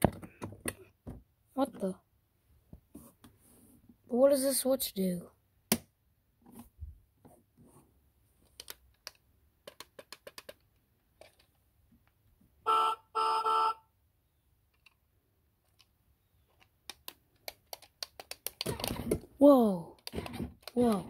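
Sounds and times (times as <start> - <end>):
plastic switches clicking: 16.6 - 18.9.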